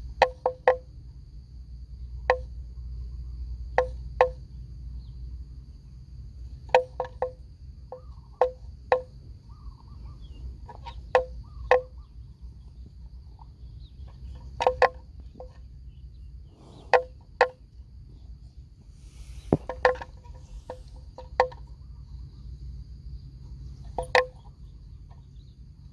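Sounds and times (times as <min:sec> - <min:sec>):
high insect drone: 0:00.0 - 0:25.9
hollow wooden knocks: 0:00.2 - 0:00.9, 0:06.7 - 0:09.1, 0:10.7 - 0:12.0, 0:14.3 - 0:15.6, 0:19.4 - 0:21.7, 0:23.9 - 0:24.5.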